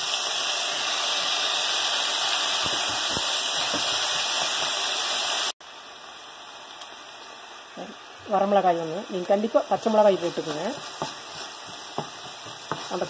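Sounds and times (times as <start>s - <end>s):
vegetables sizzling in hot oil: 0.0s - 13.0s
wooden spatula scraping: 9.8s - 13.0s.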